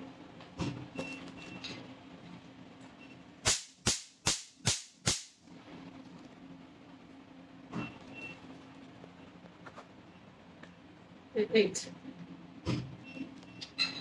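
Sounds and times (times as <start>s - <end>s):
laser pulse snaps: 3.4s - 5.4s.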